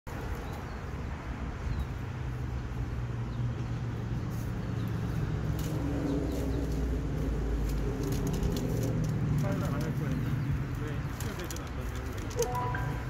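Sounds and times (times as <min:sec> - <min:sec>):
road traffic rumble: 0:00.1 - 0:13.0.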